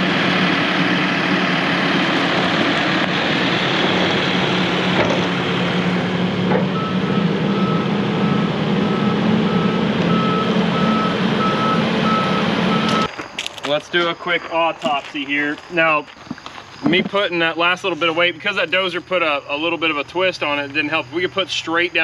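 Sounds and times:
diesel engine running: 0.0 - 13.2
reverse alarm beeping: 6.6 - 13.1.

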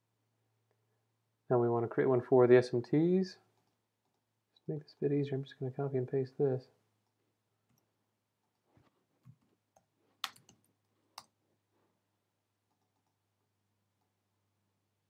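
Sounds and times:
keyboard and mouse clicks: 8.5 - 11.4, 12.7 - 13.2.

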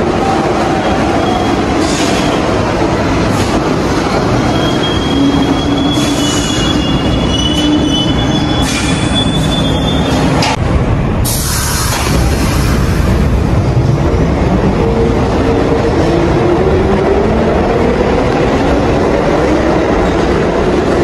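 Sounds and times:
subway train rumble and rattle: 0.0 - 21.0
high wheel squeal: 4.4 - 10.4.

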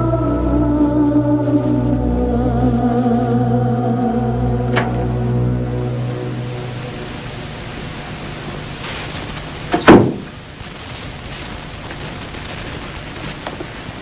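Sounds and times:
steady hiss: 0.0 - 14.0
loud sudden crack: 8.8 - 13.5.

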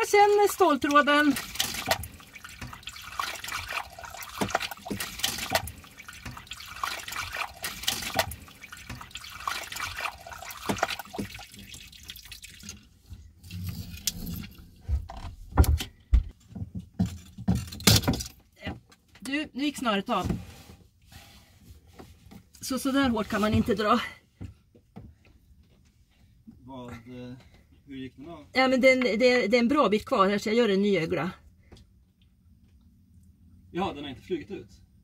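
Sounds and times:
water spurting and splashing: 0.4 - 14.8
knocks and bumps of handling: 14.8 - 19.1.

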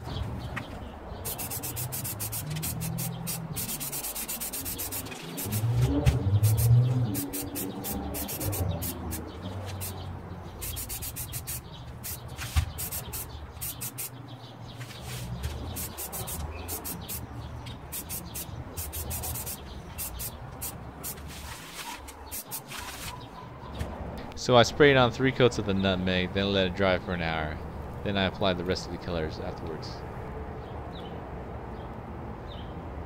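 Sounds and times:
spray paint can hissing: 1.2 - 10.0, 10.6 - 14.2, 15.7 - 21.7, 22.3 - 23.0.

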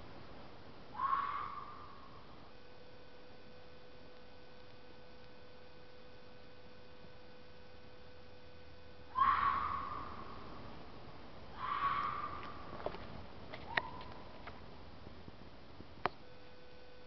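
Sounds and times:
faint steady hum: 0.0 - 17.0
low hiss: 0.0 - 17.0
wild animal screaming: 0.9 - 2.0, 9.1 - 10.4, 11.6 - 12.6.

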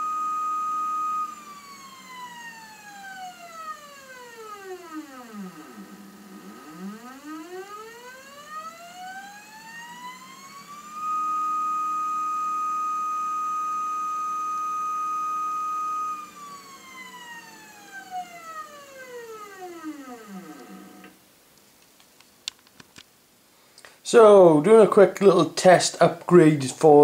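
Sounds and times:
stepper motor whining: 0.0 - 21.2.

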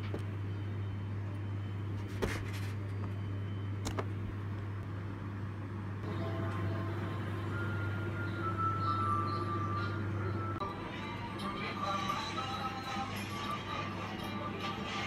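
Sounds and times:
soft music tones: 6.0 - 15.0.

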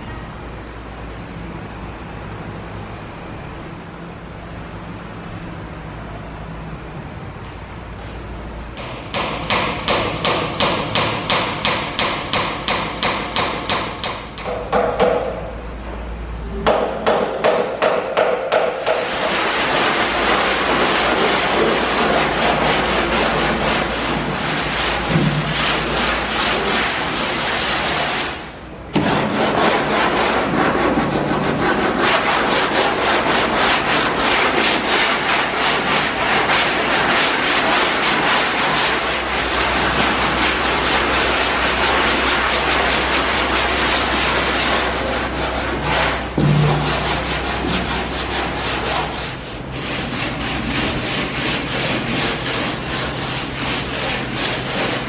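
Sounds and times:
sanding block scrubbing plywood: 18.6 - 28.4, 29.0 - 55.0.

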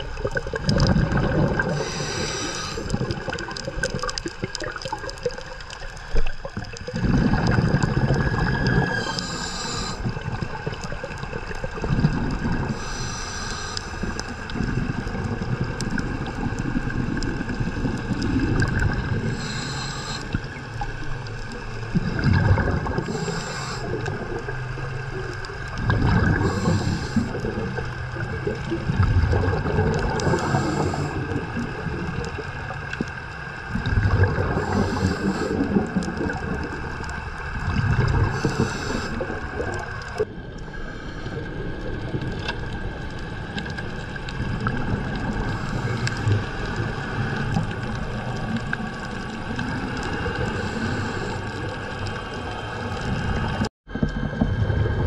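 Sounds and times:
underwater regulator breathing: 0.0 - 10.8, 12.1 - 15.8, 17.2 - 20.8, 21.9 - 24.6, 25.8 - 28.7, 29.8 - 31.8, 33.9 - 36.4, 37.0 - 42.0, 45.3 - 48.8, 49.6 - 53.1
bubbling rush: 0.0 - 55.0.

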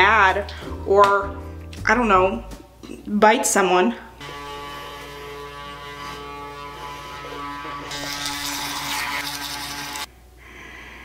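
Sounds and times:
electric toothbrush buzzing: 4.2 - 10.1
brush scrubbing teeth: 7.1 - 10.1.

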